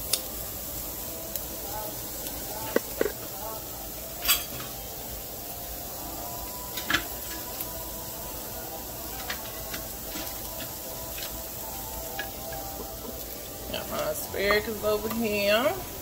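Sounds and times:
onions sizzling in oil: 0.0 - 16.0.

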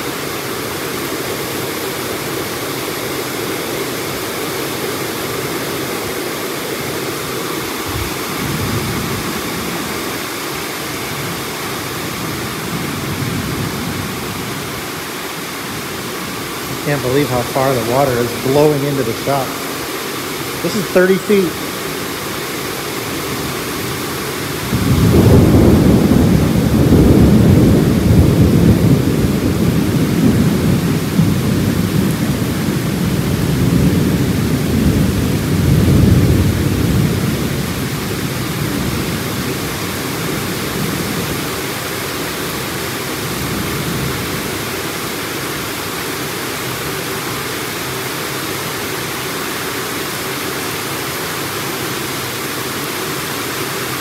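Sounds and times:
heavy rain hissing: 0.0 - 54.0
thunder rumbling: 15.7 - 41.5.

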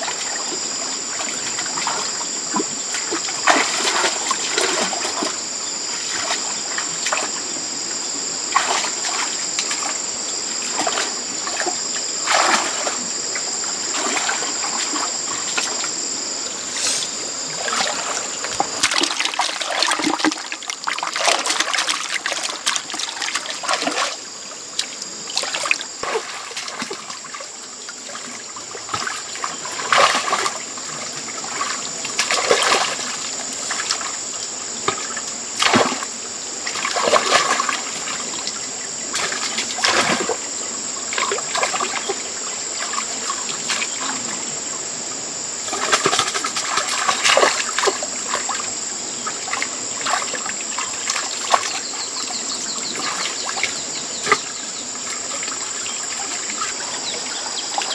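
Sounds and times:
muddy water splashing: 0.0 - 7.6, 8.5 - 16.0, 17.4 - 44.6, 45.6 - 57.9.

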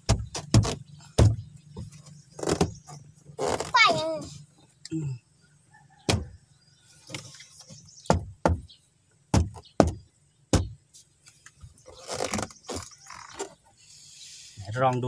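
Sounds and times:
hand knocking on enclosure: 8.1 - 8.7.

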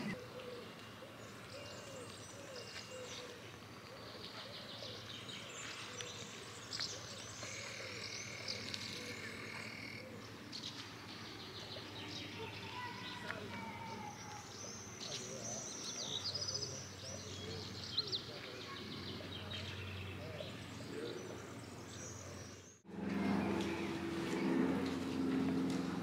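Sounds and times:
birds chirping: 0.0 - 26.0
faint distant voices: 0.0 - 26.0.

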